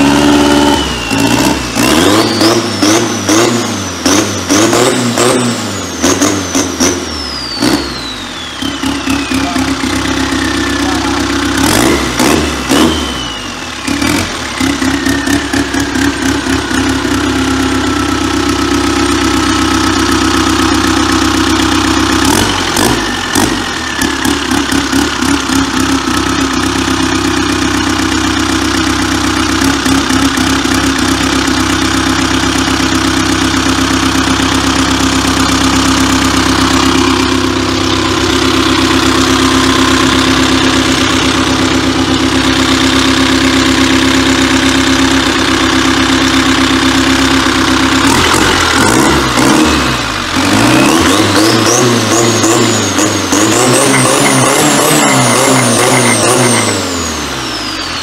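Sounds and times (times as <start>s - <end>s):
diesel engine idling and revving: 0.0s - 58.0s
turbo whistle: 0.4s - 3.1s, 6.8s - 11.3s, 50.7s - 58.0s.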